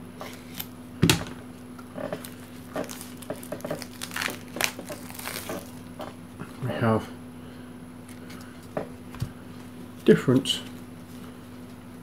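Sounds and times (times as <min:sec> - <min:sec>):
shrink wrap crinkling and tearing: 0:02.1 - 0:06.0.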